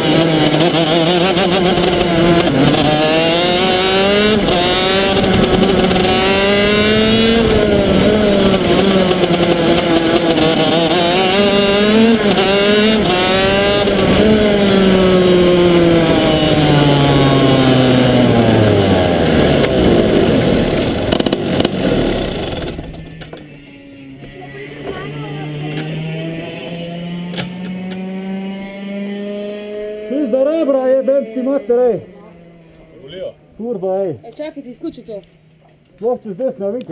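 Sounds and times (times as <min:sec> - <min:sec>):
kart engine revving: 0:00.0 - 0:33.2.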